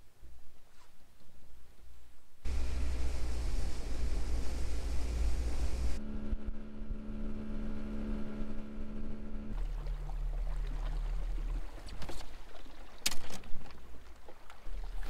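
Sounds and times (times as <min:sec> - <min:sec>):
outboard motor droning: 0:02.4 - 0:15.0
wind and water rushing: 0:02.5 - 0:06.0, 0:09.5 - 0:15.0.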